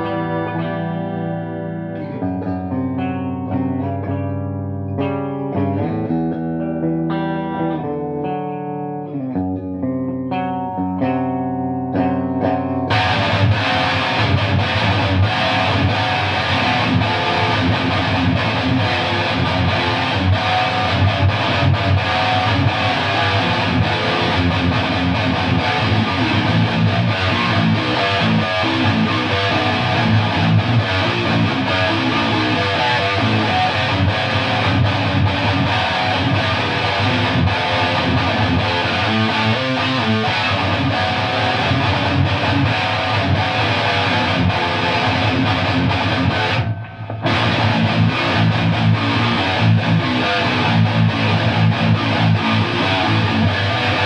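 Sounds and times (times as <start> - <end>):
distorted electric guitar riffing: 0.0 - 54.0.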